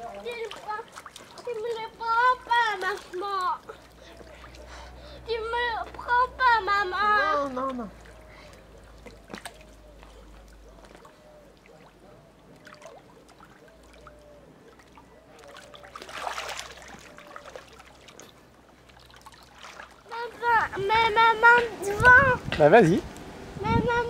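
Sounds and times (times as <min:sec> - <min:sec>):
pool water lapping and splashing: 0:00.0 - 0:24.0.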